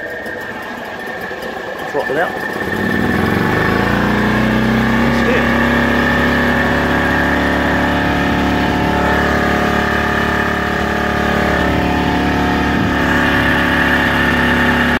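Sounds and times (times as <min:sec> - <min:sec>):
boat engine droning: 0:00.0 - 0:15.0.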